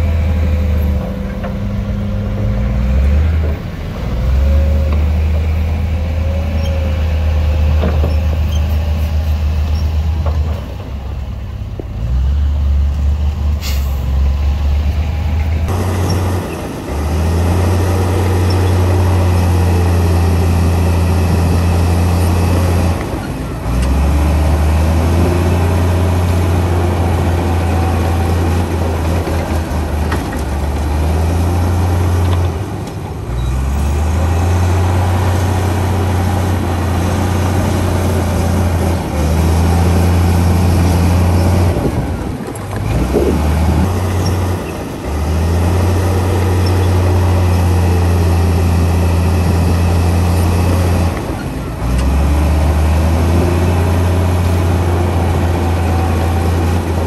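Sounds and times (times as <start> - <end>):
heavy diesel engines droning: 0.0 - 57.0
short sharp hiss: 13.6 - 14.2.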